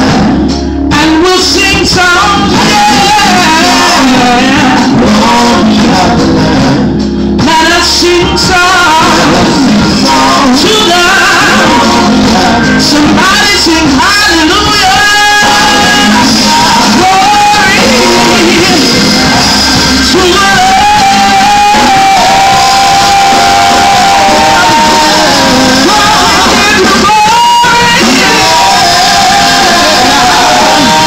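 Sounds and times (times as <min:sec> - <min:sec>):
backing voices singing: 0:00.0 - 0:31.0
band with drums: 0:00.0 - 0:31.0
woman singing into microphone: 0:00.0 - 0:31.0.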